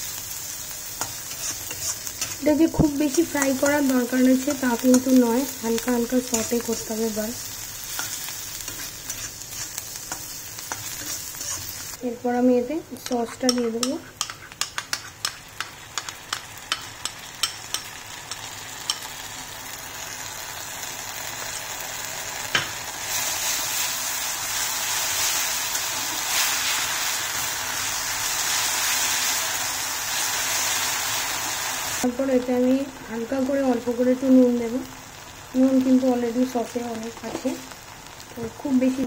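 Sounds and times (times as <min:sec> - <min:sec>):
onions sizzling in hot oil: 0:00.0 - 0:39.0
spatula scraping a wok: 0:00.7 - 0:12.0, 0:13.3 - 0:19.0, 0:23.1 - 0:31.7.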